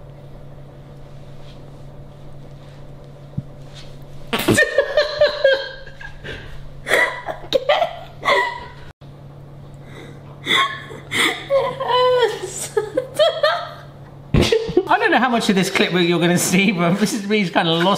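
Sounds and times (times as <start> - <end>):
woman laughing: 4.4 - 8.9, 10.4 - 14.9.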